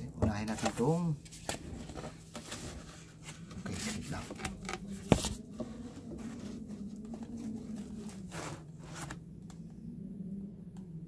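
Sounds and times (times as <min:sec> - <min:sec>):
packaging rustling and scraping: 0:00.4 - 0:09.2.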